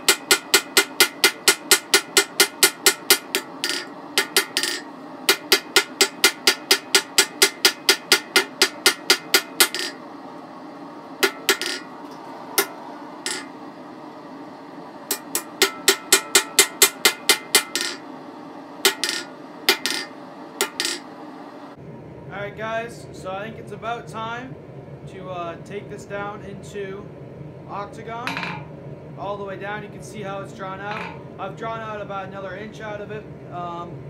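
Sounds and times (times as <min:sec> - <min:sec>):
hammer striking steel on anvil: 0:00.0 - 0:10.0, 0:11.2 - 0:11.9, 0:12.6 - 0:13.6, 0:15.1 - 0:18.0, 0:18.8 - 0:21.0, 0:30.9 - 0:31.2.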